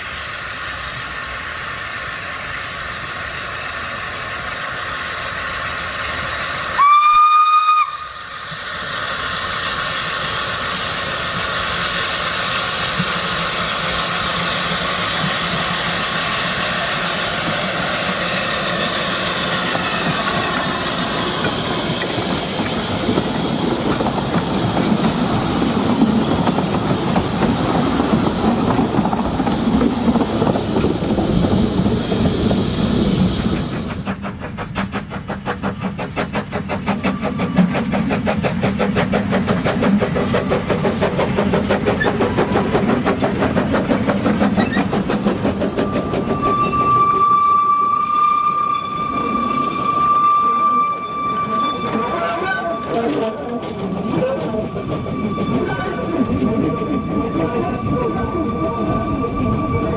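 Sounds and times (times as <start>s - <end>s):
steam hissing: 0.0s - 52.2s
train wheels rumbling on rails: 0.0s - 59.9s
steam locomotive whistle: 6.7s - 8.3s, 45.8s - 53.4s, 54.1s - 59.9s.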